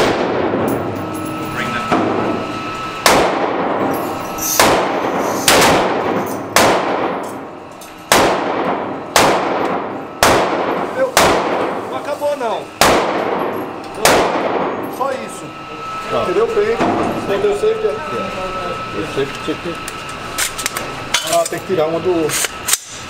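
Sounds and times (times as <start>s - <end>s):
gunshots echoing indoors: 0.0s - 0.9s, 3.0s - 3.9s, 4.6s - 12.0s, 12.7s - 15.0s.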